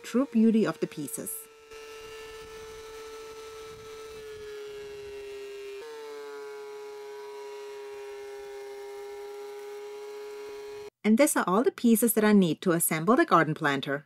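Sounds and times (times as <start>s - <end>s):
thickness planer motor whine: 0.0s - 10.9s.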